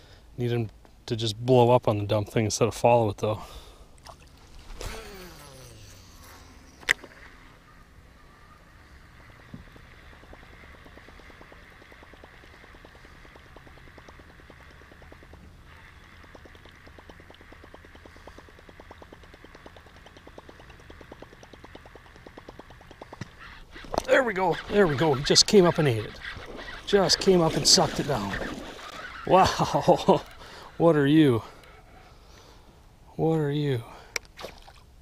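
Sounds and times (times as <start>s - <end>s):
fishing reel spool whirring: 4.5s - 32.4s
reel ticking while cranked: 9.7s - 30.8s.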